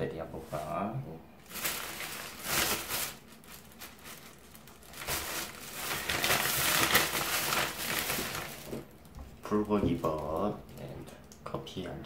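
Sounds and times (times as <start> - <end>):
plastic bag crinkling: 1.4 - 11.0.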